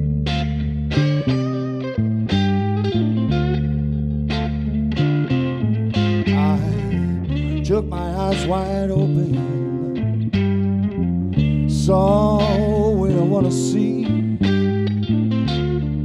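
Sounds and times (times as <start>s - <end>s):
bass guitar: 0.0s - 16.0s
electric guitar: 0.0s - 16.0s
man singing: 6.3s - 9.9s, 11.7s - 14.4s.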